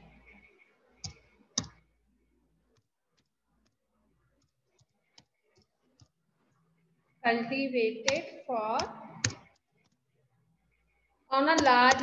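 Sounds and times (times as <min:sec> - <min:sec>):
computer keyboard typing: 0:01.0 - 0:01.8, 0:08.0 - 0:10.0, 0:11.5 - 0:12.0.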